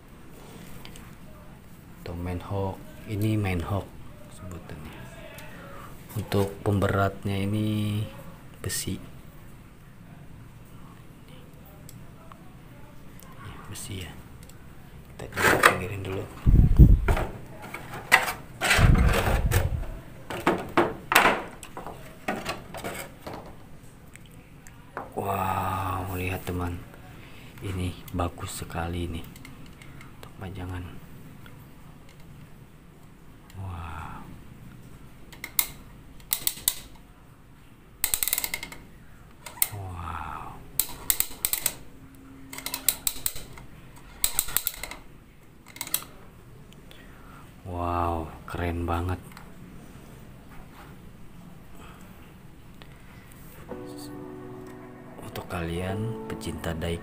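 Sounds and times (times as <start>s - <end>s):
metal toy clicks and knocks: 35.4s - 37.0s, 38.0s - 38.8s, 40.8s - 41.8s, 42.5s - 43.6s, 44.2s - 45.0s.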